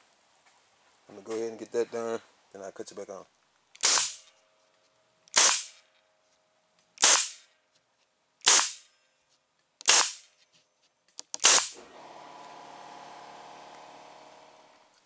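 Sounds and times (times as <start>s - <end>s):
staple gun firing: 3.8s - 4.2s, 5.3s - 5.8s, 7.0s - 7.4s, 8.4s - 8.8s, 9.8s - 10.2s, 11.2s - 11.8s.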